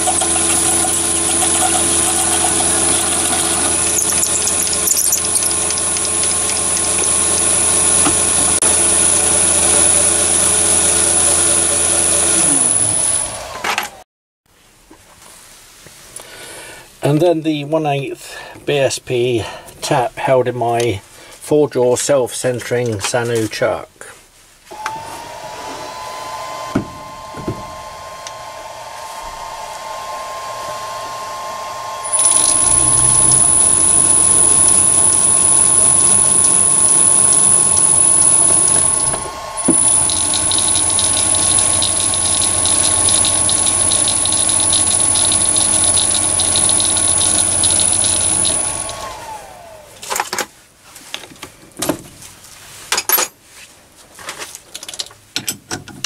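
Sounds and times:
lathe motor whine: 0.0s - 14.0s, 24.7s - 50.0s
metal clicks and knocks: 54.7s - 56.0s.

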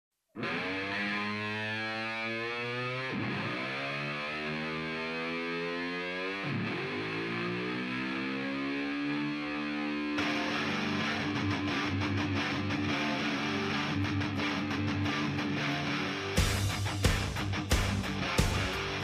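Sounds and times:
strummed guitar rhythm: 0.4s - 1.6s, 4.5s - 7.7s, 8.8s - 19.0s
distorted electric guitar chords: 0.4s - 19.0s.

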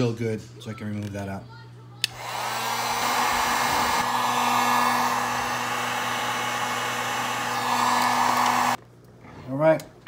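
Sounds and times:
heat gun fan blowing: 2.0s - 8.8s.

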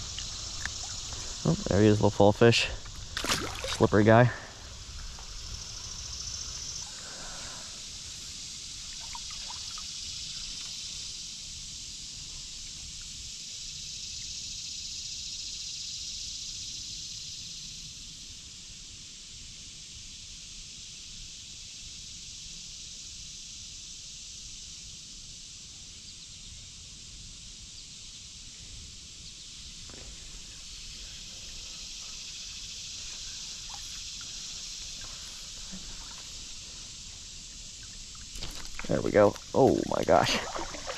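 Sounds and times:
river current hissing over riffles: 0.0s - 14.2s, 29.4s - 40.9s.

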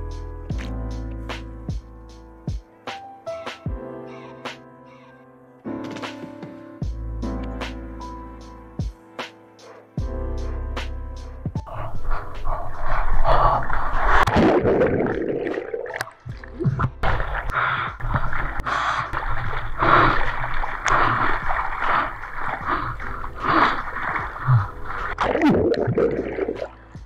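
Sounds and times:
water splashing and gurgling: 11.7s - 27.0s
paddling splashes: 13.6s - 26.8s.

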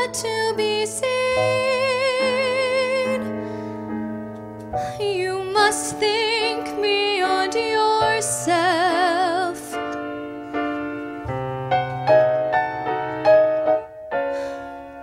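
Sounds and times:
piano notes and chords: 0.0s - 15.0s
woman singing with vibrato: 5.0s - 9.8s.

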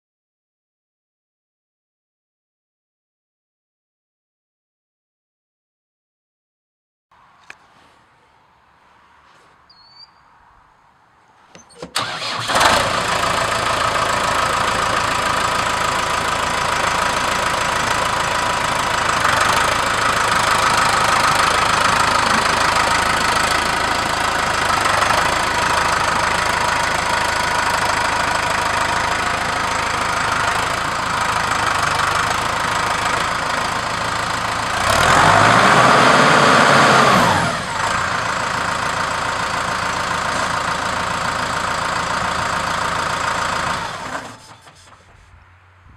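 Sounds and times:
diesel tractor engine idling and revving: 11.5s - 45.9s.

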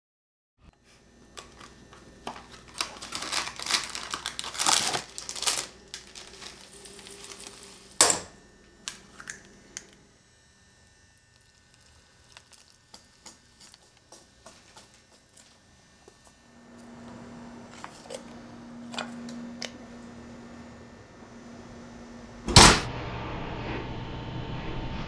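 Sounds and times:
packaging crinkling and tearing: 1.4s - 8.0s, 8.8s - 10.0s, 11.2s - 15.6s.

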